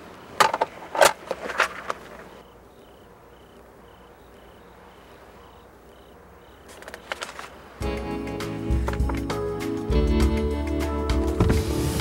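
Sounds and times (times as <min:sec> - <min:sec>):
cricket chirps: 0:00.0 - 0:09.2
papers rustling: 0:00.4 - 0:02.4, 0:06.6 - 0:07.7.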